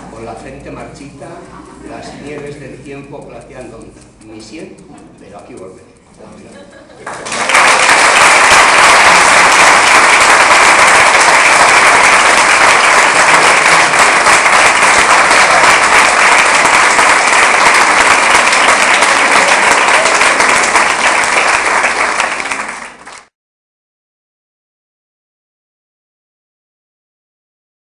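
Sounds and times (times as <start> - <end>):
applause: 7.0 - 23.3.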